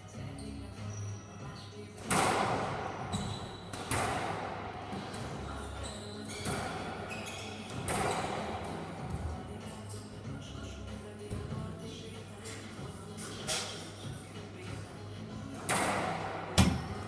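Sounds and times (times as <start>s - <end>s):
echo of enclosed court: 0.0s - 17.0s
squash ball hitting rackets and walls: 2.0s - 10.4s, 11.2s - 11.8s, 12.4s - 17.0s.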